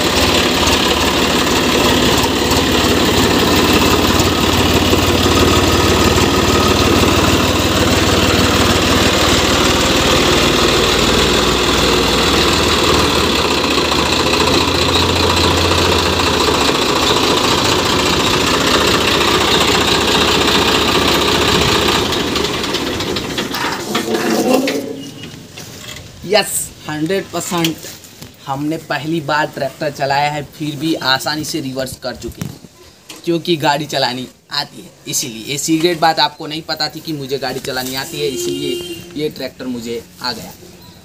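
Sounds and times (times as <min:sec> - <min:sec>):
tractor diesel engine running: 0:00.0 - 0:26.8.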